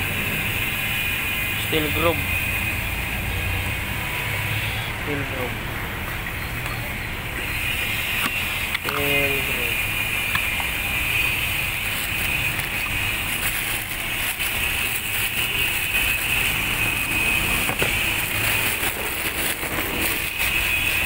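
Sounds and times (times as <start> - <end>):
high-pitched hum: 0.0 - 21.0
plastic wrapping crinkling: 10.3 - 21.0.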